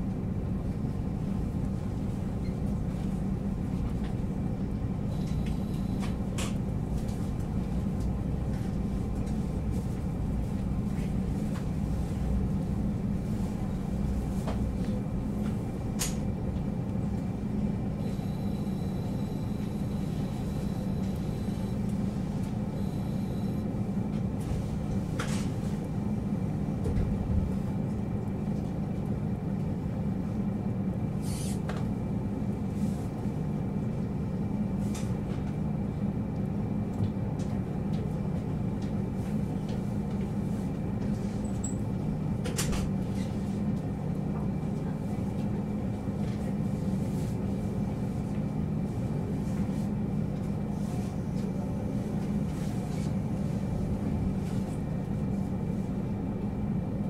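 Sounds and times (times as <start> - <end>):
faint high whine: 18.0 - 21.9, 22.8 - 23.7.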